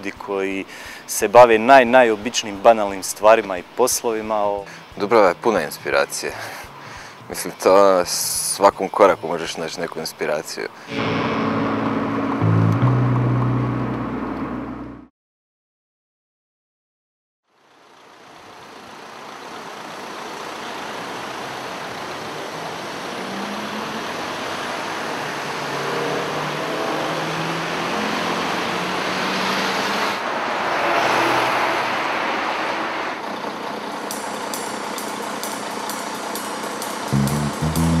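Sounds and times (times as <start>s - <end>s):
cars and trucks passing: 4.4s - 7.6s, 17.8s - 38.0s.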